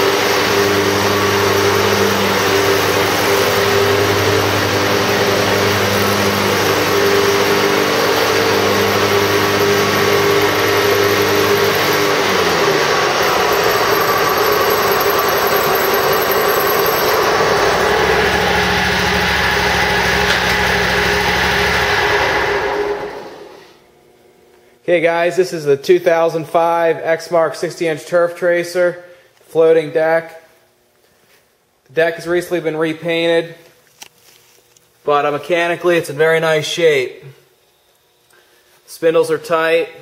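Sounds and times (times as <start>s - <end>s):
lawn mower engine running: 0.0s - 23.5s.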